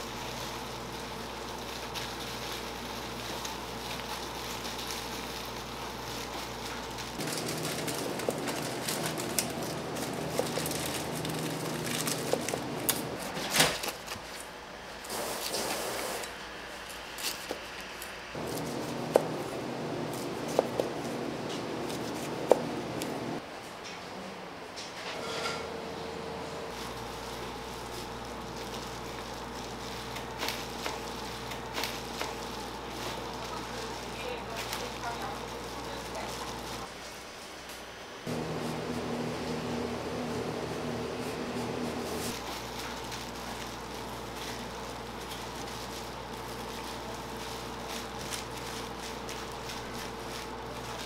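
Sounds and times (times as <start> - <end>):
crackly cooking hiss: 0.0 - 23.4, 26.6 - 39.3, 42.1 - 51.0
utensils clicking and tapping: 6.3 - 13.1.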